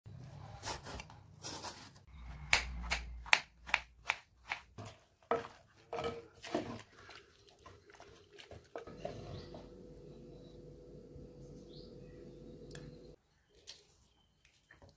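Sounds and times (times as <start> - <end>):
wooden masher in clay pot: 3.7 - 9.8.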